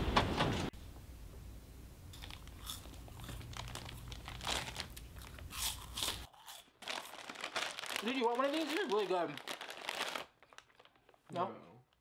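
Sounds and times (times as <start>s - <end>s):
crisps being crunched: 2.1s - 11.3s
foil packet crinkling: 2.2s - 11.4s.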